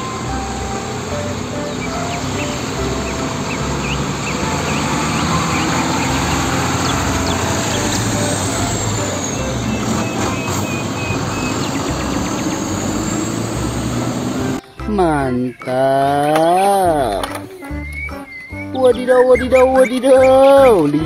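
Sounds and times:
diesel truck engine running: 0.0 - 15.6
street traffic: 0.0 - 21.0
tyre and road noise: 0.0 - 21.0.

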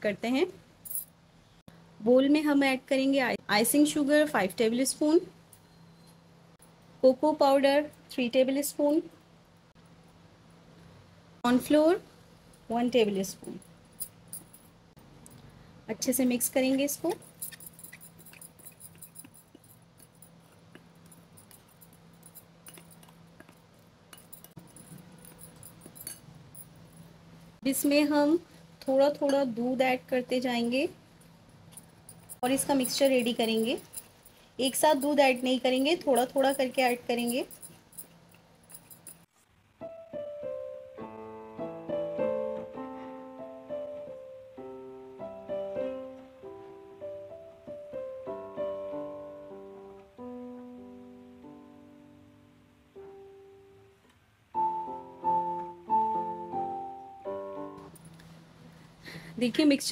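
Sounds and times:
low steady hum: 0.0 - 39.3
spoon stirring in glass bowl: 17.2 - 26.3, 32.1 - 39.0
slow piano melody: 39.8 - 58.8.

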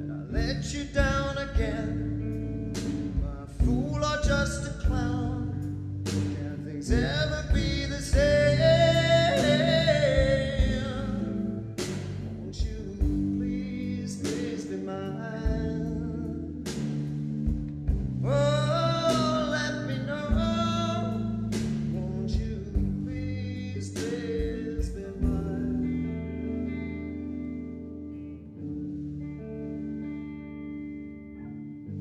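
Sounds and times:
bass guitar notes: 0.0 - 32.0
electric guitar: 0.0 - 32.0
drums hitting a regular beat: 0.4 - 14.8, 15.4 - 16.0, 16.6 - 25.6.

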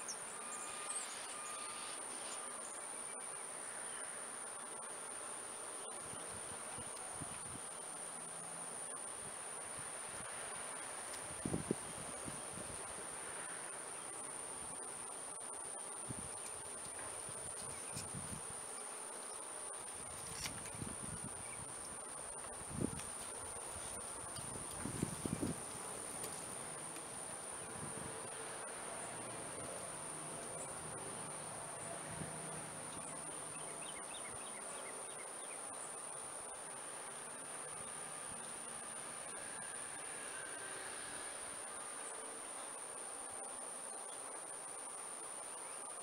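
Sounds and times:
high-pitched insect drone: 0.0 - 2.8, 37.2 - 42.2
high-pitched insect trill: 0.0 - 4.6, 6.0 - 46.0
faint outdoor background noise: 0.0 - 46.0.

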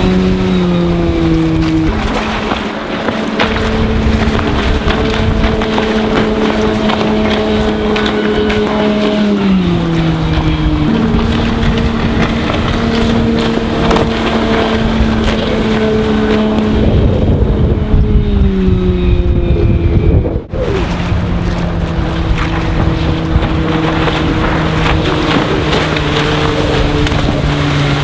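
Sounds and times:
speedboat engine running: 0.0 - 28.0
wind noise on microphone: 0.0 - 28.0.

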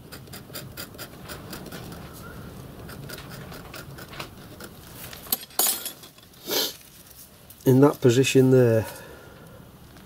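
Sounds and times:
scriber scraping metal: 0.0 - 7.3.

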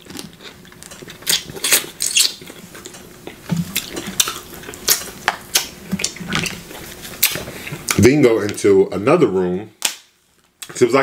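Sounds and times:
wet smacks and clicks: 3.7 - 6.6.

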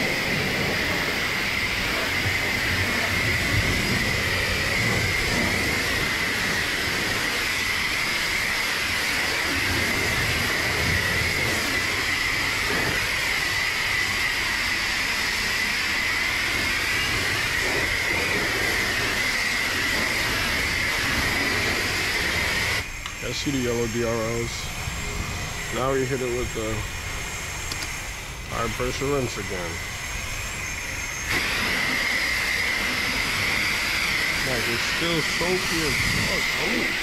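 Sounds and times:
high-pressure water spray hissing: 0.0 - 37.0.

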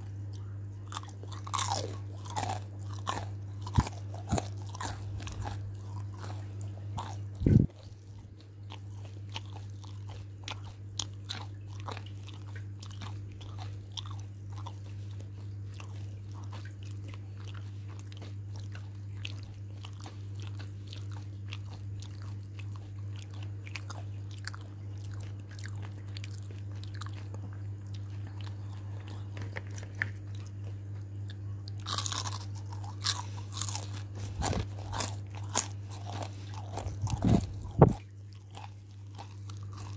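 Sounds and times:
crunching and chewing fried chicken: 0.0 - 39.9
steady low hum: 0.0 - 39.9.

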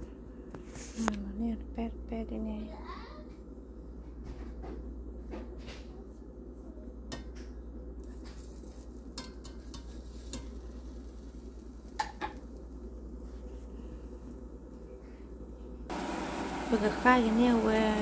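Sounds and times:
steady low hum: 0.0 - 18.0
spatula scraping frying pan: 9.2 - 11.2.

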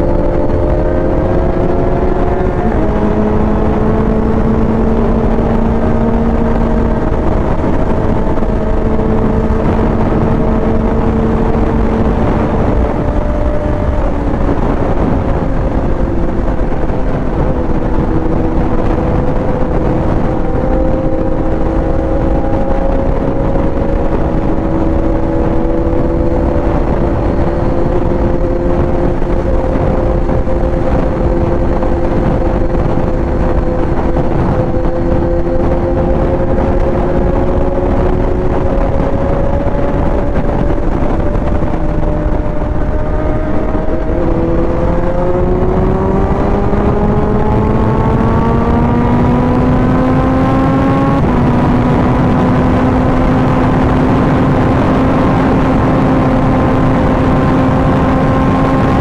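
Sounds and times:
motorcycle engine running: 0.0 - 59.0
wind rumble on microphone: 0.0 - 59.0.

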